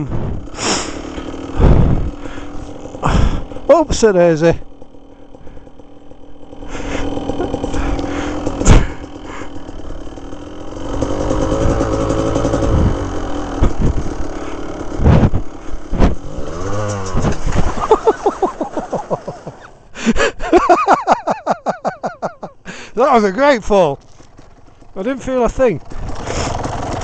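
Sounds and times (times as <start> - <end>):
motorbike engine revving: 0.0 - 27.0
sharp knocks of bike jolting: 4.7 - 12.9, 14.9 - 19.2.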